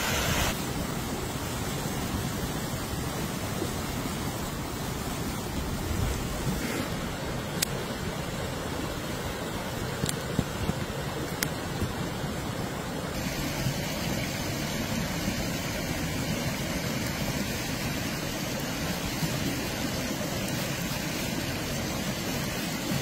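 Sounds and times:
stream running: 0:00.0 - 0:23.0.

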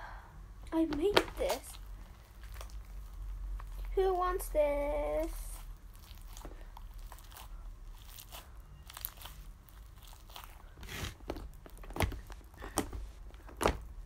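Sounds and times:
slime squeezed crackling and popping: 0:00.9 - 0:04.2, 0:05.0 - 0:12.8.

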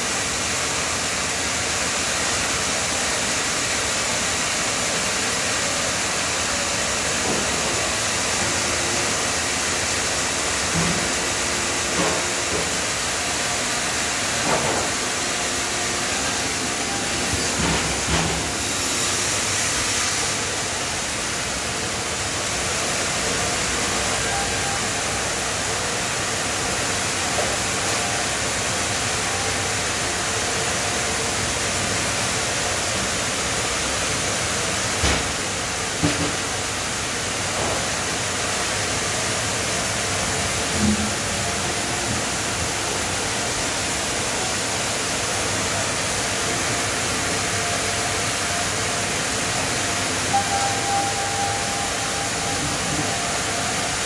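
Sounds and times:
sawmill machinery running: 0:00.0 - 0:54.0.

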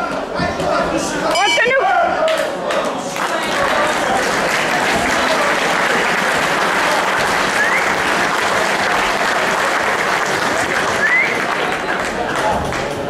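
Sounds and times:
audience applauding: 0:02.2 - 0:13.0
rising whistle: 0:07.6 - 0:08.0, 0:11.0 - 0:11.5.

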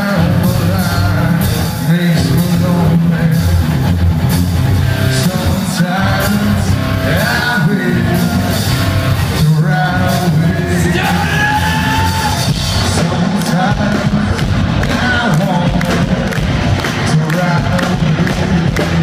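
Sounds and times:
man singing into a microphone: 0:00.0 - 0:03.8, 0:05.0 - 0:19.0
live rock band playing: 0:00.0 - 0:19.0.

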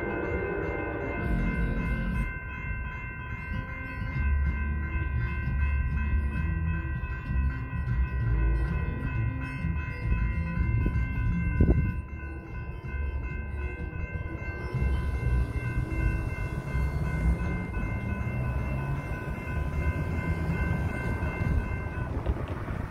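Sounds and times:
low rumble: 0:00.0 - 0:03.0
railroad crossing bells ringing: 0:00.0 - 0:22.9.

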